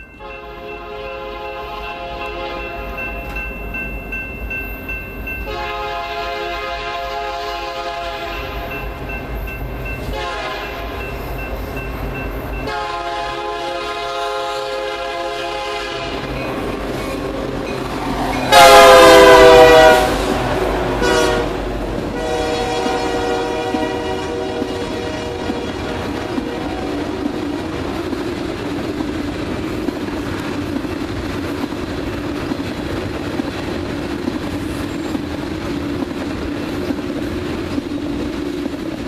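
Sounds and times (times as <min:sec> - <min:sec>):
train wheels rumbling and clattering: 0:00.0 - 0:39.0
train horn blasts: 0:00.2 - 0:03.0, 0:05.4 - 0:08.8, 0:10.0 - 0:11.0, 0:12.7 - 0:16.6, 0:18.3 - 0:27.2.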